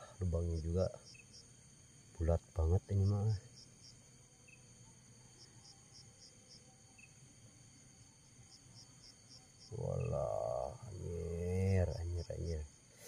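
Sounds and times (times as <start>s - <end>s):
cricket chirping: 0.0s - 13.0s
high-pitched insect drone: 2.2s - 13.0s.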